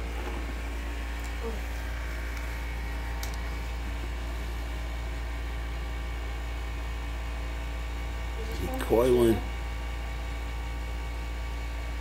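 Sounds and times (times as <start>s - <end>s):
low hum with hiss: 0.0s - 12.0s.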